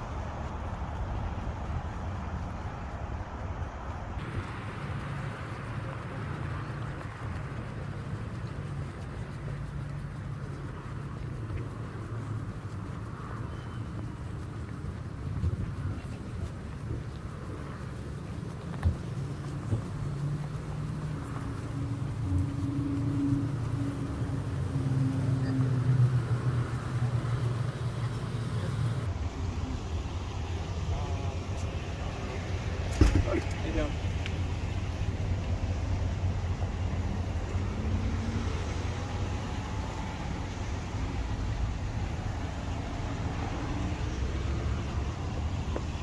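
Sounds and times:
vehicle engine rumbling: 0.0 - 46.0
background hiss: 26.1 - 46.0.

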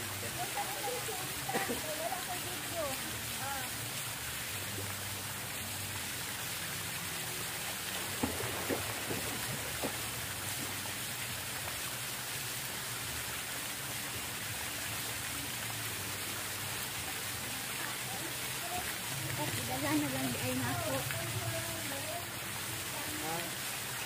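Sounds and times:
hiss of falling water: 0.0 - 24.0
short knocks or splashes: 8.0 - 10.8.

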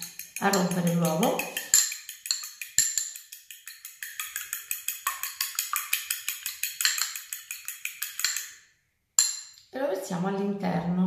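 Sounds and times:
fork beating egg in glass bowl: 0.0 - 8.6.

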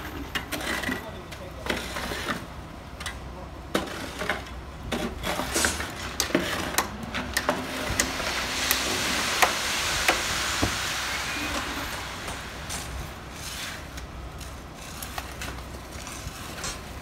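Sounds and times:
shovel and rake scraping: 0.0 - 2.5, 3.7 - 17.0
wet concrete sliding down chute: 3.8 - 17.0
mixer truck drone: 5.1 - 17.0.

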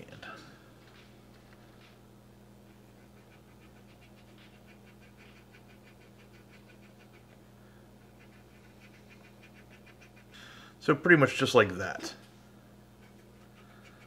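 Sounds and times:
low steady hum: 0.0 - 14.0
cotton swab scratching plastic: 2.7 - 7.4.

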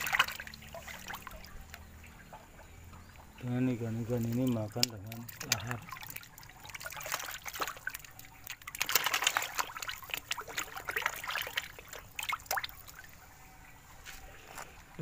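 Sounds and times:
fish splashing at water surface: 0.0 - 2.3, 4.1 - 13.2.

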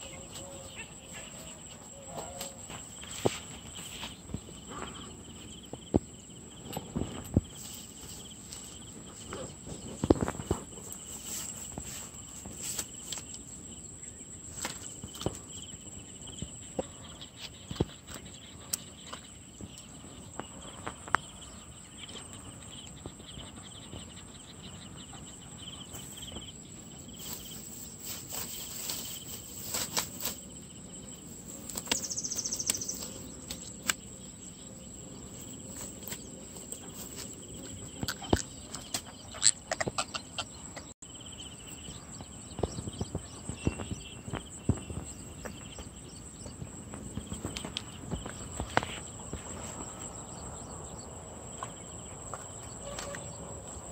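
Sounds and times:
high insect drone: 0.0 - 53.9
rustles and knocks of handling: 25.9 - 30.6
fish flapping in grass: 27.2 - 30.5.

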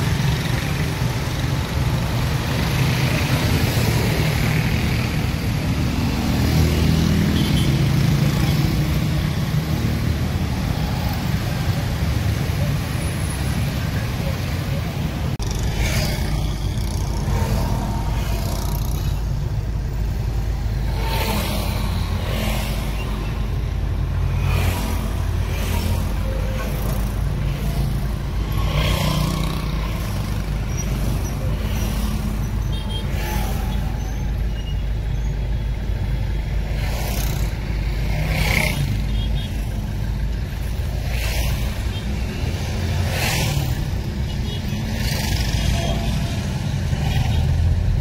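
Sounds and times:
traffic engines rumbling: 0.0 - 48.0
vehicles revving: 0.0 - 48.0.

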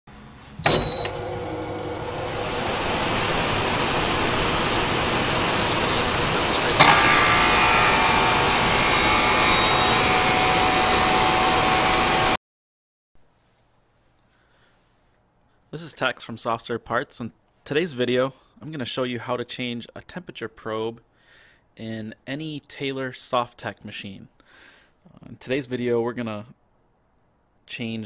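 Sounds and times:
dense rush of noise with tones: 2.4 - 8.7
swelling hiss: 2.9 - 9.3
sharp hit: 4.2 - 11.0.

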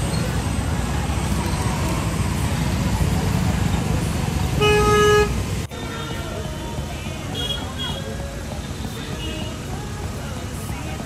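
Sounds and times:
scooters and motorcycles passing: 0.0 - 5.6.

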